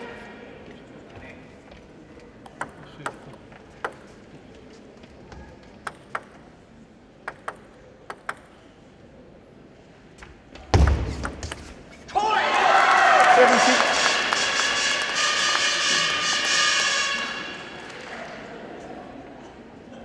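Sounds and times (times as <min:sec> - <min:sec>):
ball bouncing on table: 0:02.4 - 0:04.2, 0:05.8 - 0:06.4, 0:07.2 - 0:08.6
table tennis ball hitting rackets: 0:02.4 - 0:04.2, 0:05.8 - 0:06.5, 0:07.2 - 0:08.6, 0:10.8 - 0:11.8.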